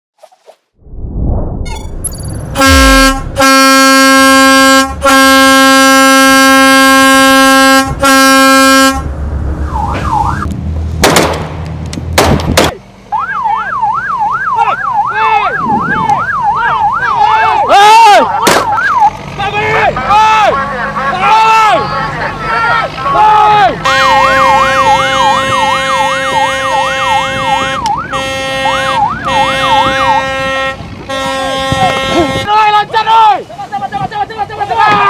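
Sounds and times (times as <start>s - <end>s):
engine rumble: 0.8s - 32.5s
ship horn blasts: 2.5s - 9.2s, 19.9s - 32.5s
yelping siren: 9.6s - 10.5s, 13.1s - 19.2s, 21.2s - 30.5s.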